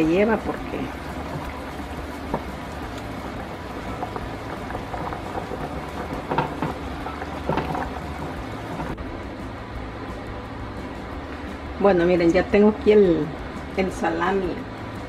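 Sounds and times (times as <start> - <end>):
spoon stirring wet onions: 0.3 - 9.0.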